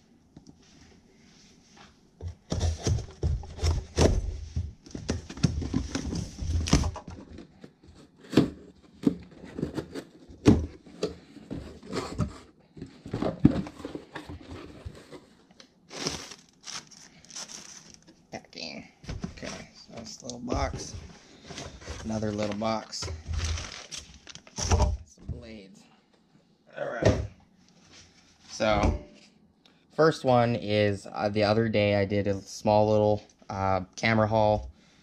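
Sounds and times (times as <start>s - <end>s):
plastic wrapping rustling: 13.2s - 18.2s, 19.2s - 24.8s.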